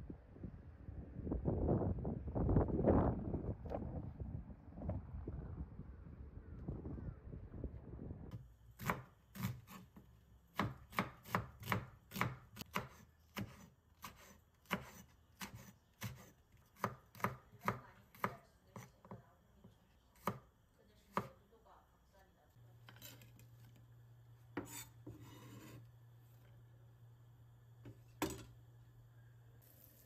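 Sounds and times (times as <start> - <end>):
knife chopping on wooden board: 8.8 - 19.2, 20.2 - 20.4, 21.1 - 21.4, 24.6 - 25.8.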